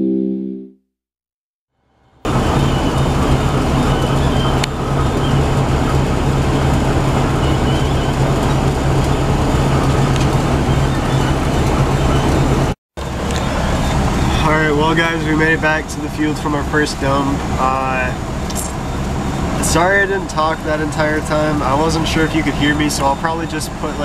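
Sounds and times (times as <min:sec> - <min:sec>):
truck engine droning: 0:01.8 - 0:24.0.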